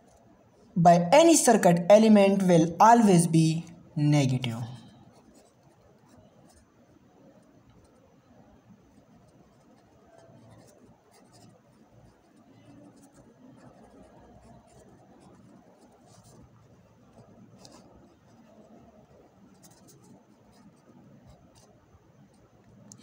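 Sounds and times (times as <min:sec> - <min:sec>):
pen scratching on paper: 0:05.0 - 0:06.7, 0:08.8 - 0:22.6.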